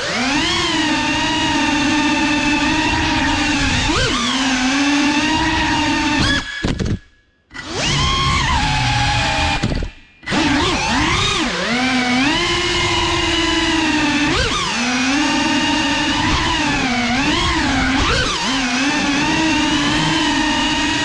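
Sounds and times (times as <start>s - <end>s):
drone motors and propellers whining: 0.0s - 21.0s
drone brushing a wooden panel: 7.6s - 21.0s.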